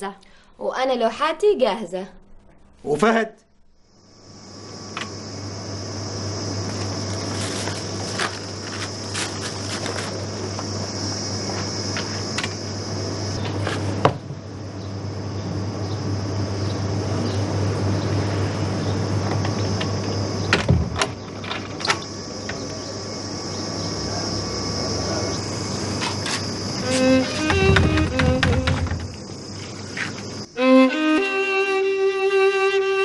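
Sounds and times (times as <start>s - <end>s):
steady hum with high buzz: 0.0s - 33.0s
sharp knocks: 26.9s - 29.3s.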